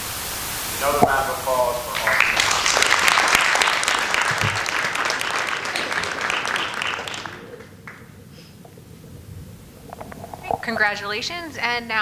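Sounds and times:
audience applauding: 0.8 - 8.2.

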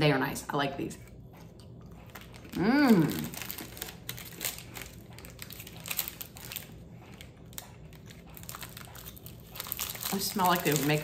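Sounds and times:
plastic packaging crinkling: 2.0 - 11.0
person humming mmm: 2.5 - 3.4.

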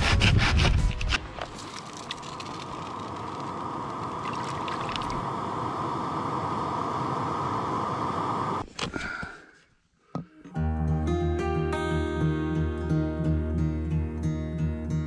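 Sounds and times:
gas stove burner roaring: 5.1 - 8.6.

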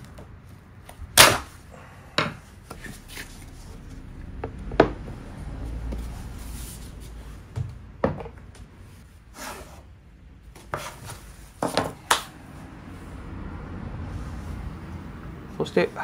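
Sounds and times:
scraping rub on wood: 10.6 - 11.8.

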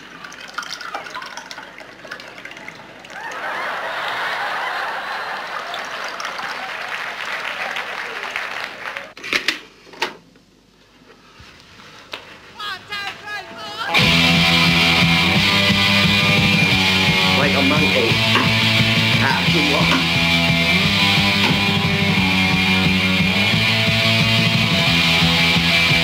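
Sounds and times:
tea pouring into cups: 0.0 - 3.2
sharp knocks: 21.4 - 21.8.

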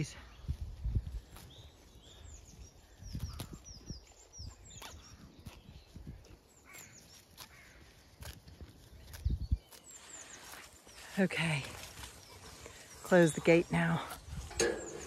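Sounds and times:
small birds chirping: 0.0 - 15.0.

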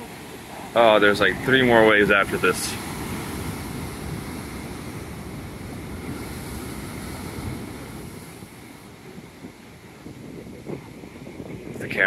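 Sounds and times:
ocean surf breaking: 0.0 - 12.0
wind on microphone: 0.0 - 12.0.

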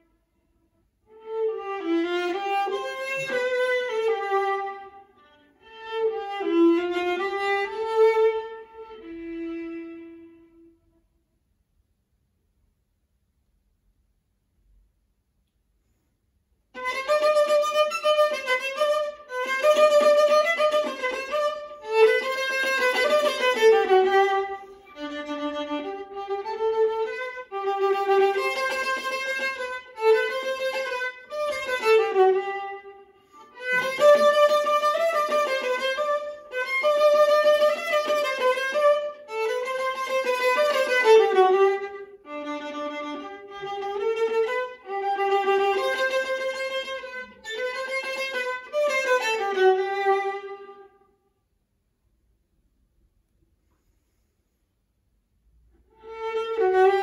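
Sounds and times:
bowed viola melody: 1.1 - 11.0, 16.7 - 51.1, 55.8 - 57.0.

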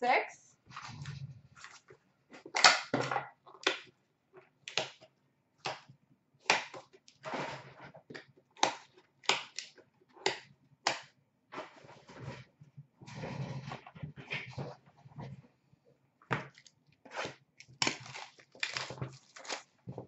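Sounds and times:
card wrappers snapping and crinkling: 17.6 - 20.0.

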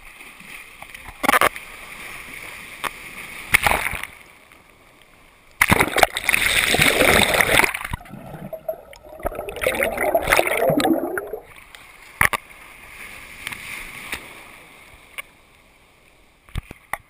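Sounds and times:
underwater bubbling and gurgling: 5.6 - 11.7
breaking white water rushing: 6.8 - 11.4.

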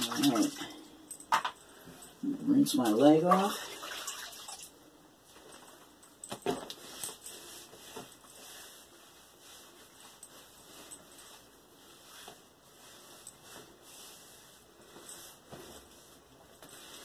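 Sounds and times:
washcloth rubbing on skin: 6.8 - 17.0.

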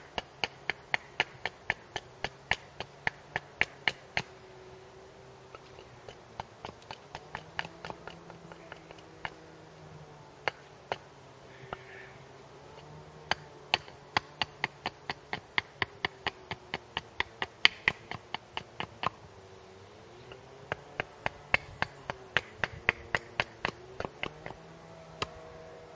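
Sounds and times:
hatchet chopping wood: 0.0 - 4.4, 5.4 - 9.4, 10.4 - 11.1, 12.7 - 19.2, 20.2 - 25.6.

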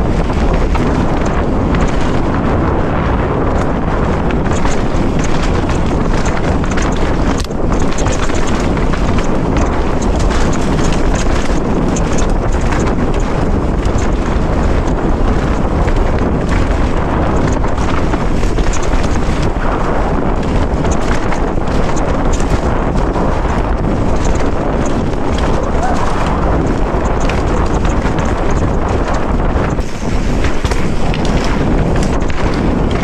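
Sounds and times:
bike clicking and knocking: 0.0 - 33.0
wind noise on microphone: 0.0 - 33.0
tyres crunching on rock and dirt: 3.5 - 33.0.

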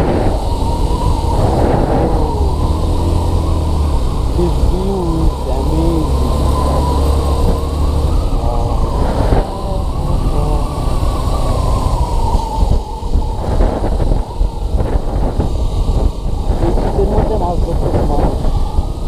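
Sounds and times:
motorcycle engine running: 0.0 - 19.0
wind buffeting microphone: 0.0 - 19.0.

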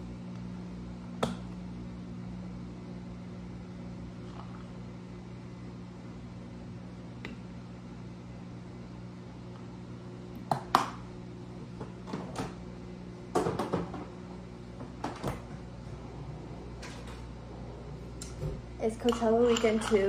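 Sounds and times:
appliance electrical hum: 0.0 - 20.0.

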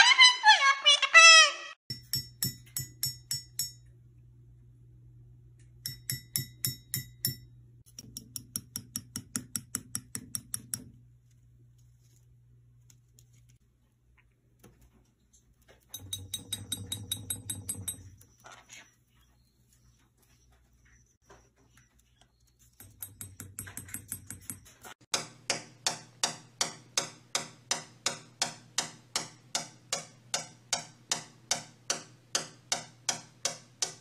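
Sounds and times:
beak tapping ceramic mug: 5.8 - 10.8.

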